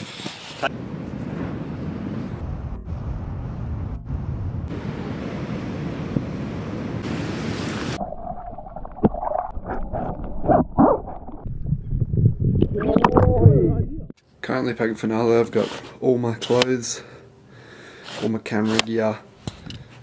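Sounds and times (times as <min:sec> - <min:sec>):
surf and wind rushing: 0:00.7 - 0:08.0
muffled underwater sound: 0:08.9 - 0:14.1.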